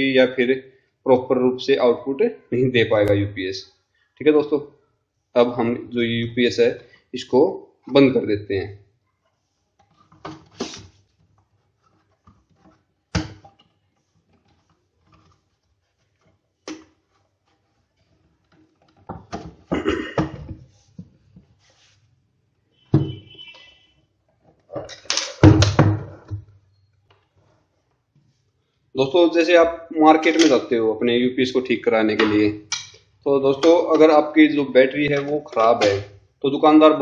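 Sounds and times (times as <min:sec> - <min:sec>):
plastic clatter: 0:09.8 - 0:21.6, 0:24.4 - 0:27.4.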